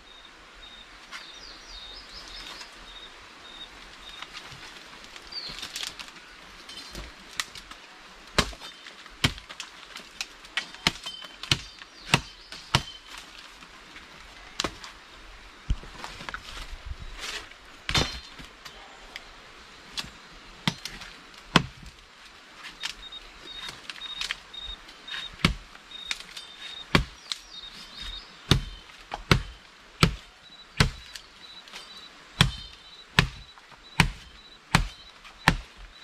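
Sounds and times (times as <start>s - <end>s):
machete chopping wood: 8.4s - 8.6s, 10.6s - 13.0s, 17.9s - 18.4s, 20.6s - 21.9s, 25.3s - 26.3s, 26.9s - 27.3s, 28.0s - 31.2s, 32.4s - 35.7s
bird chirps: 22.8s - 29.6s, 30.4s - 36.0s.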